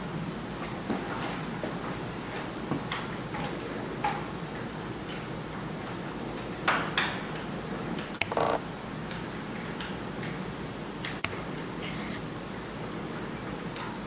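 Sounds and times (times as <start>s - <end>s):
sharp clicks and knocks: 8.1s - 8.6s.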